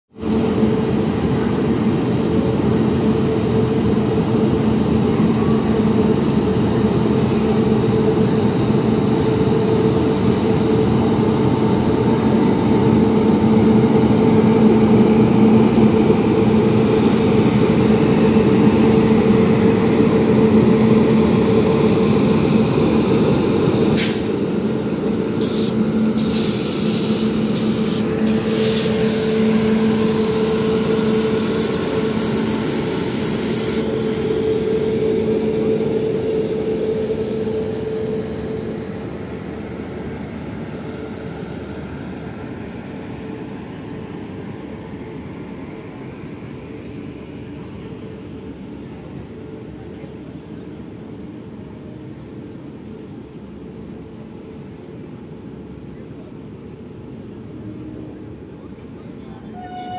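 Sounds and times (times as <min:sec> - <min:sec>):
electric locomotive hum: 0:00.2 - 0:59.9
high electrical whine: 0:24.0 - 0:39.1.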